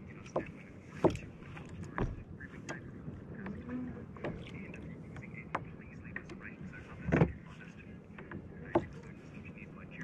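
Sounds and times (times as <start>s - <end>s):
small waves slapping kayak hull: 0.0s - 10.0s
sharp knocks on hull: 0.3s - 2.3s.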